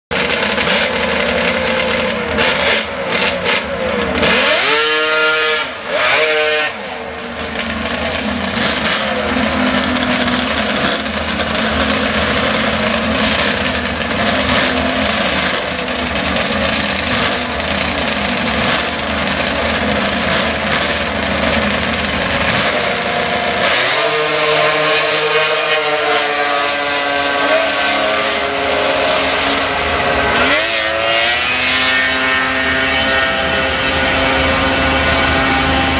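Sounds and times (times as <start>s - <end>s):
snowmobile engines revving: 0.1s - 35.9s.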